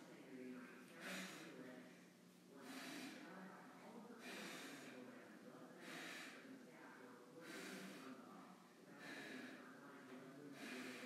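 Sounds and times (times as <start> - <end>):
faint low hum: 0.0 - 11.0
person breathing heavily: 1.0 - 1.6, 2.6 - 3.4, 4.2 - 5.1, 5.8 - 6.6, 7.4 - 8.3, 9.0 - 9.8, 10.5 - 11.0.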